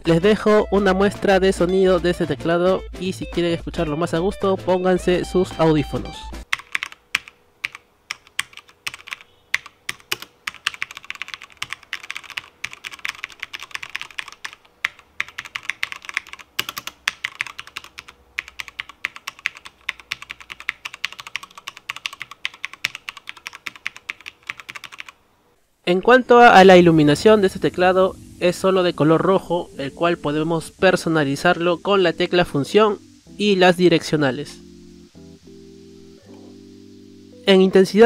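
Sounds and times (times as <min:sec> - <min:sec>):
mechanical keyboard typing: 0:06.5 - 0:25.2.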